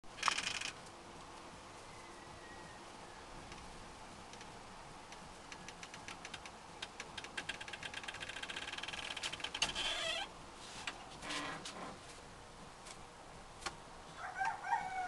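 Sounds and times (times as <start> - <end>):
sharp clicks: 0.2 - 0.9, 5.1 - 9.8.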